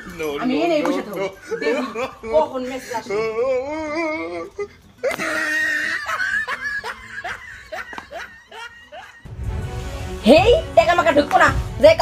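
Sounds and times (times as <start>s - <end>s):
person wailing: 3.0s - 6.2s.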